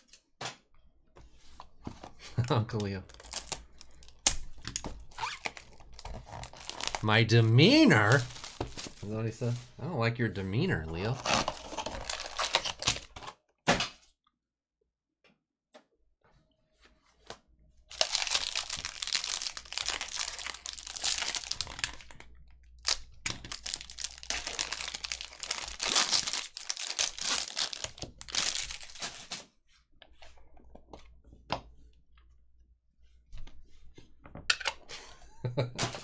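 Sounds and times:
foil wrapper crinkling: 2.8s - 4.3s, 5.1s - 7.0s, 7.6s - 9.6s, 11.2s - 13.2s, 17.9s - 29.4s
cards tapping and rustling: 8.1s - 9.0s.

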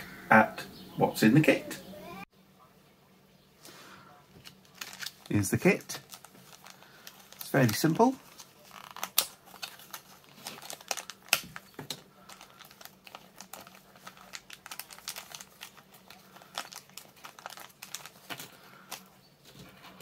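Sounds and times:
plastic bag crinkling: 4.4s - 20.0s.

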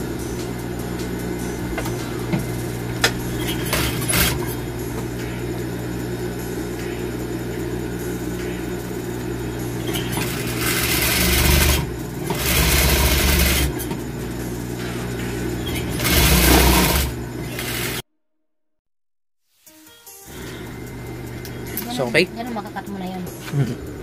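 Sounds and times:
sewing machine stitching: 3.3s - 4.6s, 9.9s - 13.9s, 15.6s - 18.0s.

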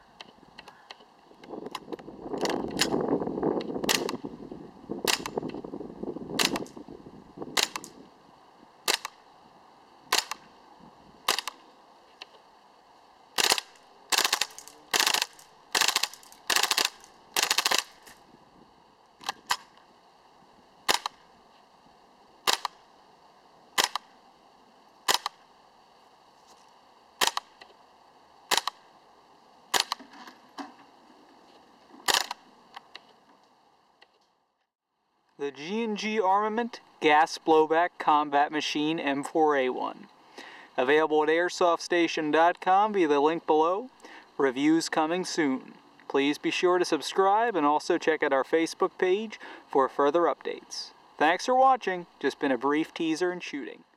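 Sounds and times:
airsoft rifle shots: 2.4s - 3.0s, 3.8s - 4.3s, 5.0s - 5.6s, 6.4s - 6.8s, 7.5s - 8.0s, 8.8s - 9.2s, 10.1s - 10.5s, 11.2s - 11.6s, 13.4s - 18.2s, 19.2s - 19.8s, 20.8s - 21.2s, 22.4s - 22.9s, 23.8s - 24.2s, 25.0s - 25.5s, 27.2s - 27.7s, 28.5s - 28.9s, 29.7s - 30.2s, 32.0s - 32.4s.

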